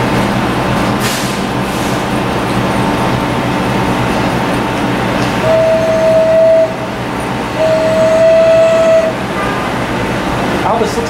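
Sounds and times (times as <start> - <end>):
train car rumbling on track: 0.0 - 11.0
train horn long note: 5.4 - 9.8.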